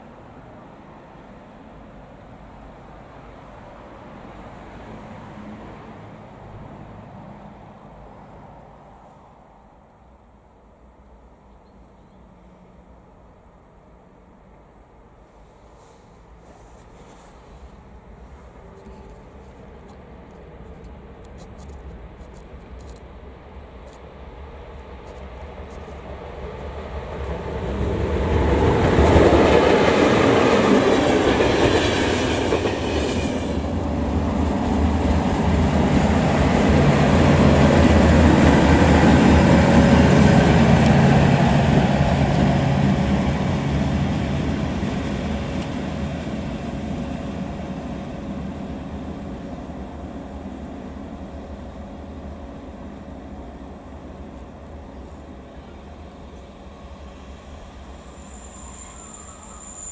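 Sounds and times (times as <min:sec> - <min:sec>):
locomotive hum: 0:00.0 - 0:59.9
locomotive wheels rumbling on rails: 0:15.4 - 0:59.9.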